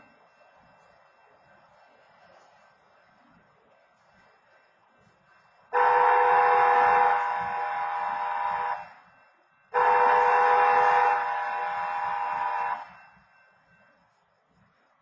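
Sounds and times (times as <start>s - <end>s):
railway crossing horn blasts: 5.7s - 9.1s, 9.7s - 13.2s.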